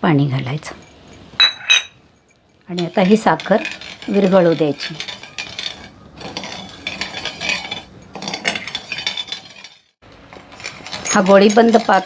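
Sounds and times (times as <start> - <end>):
spoon scraping a metal pan: 2.7 - 9.9.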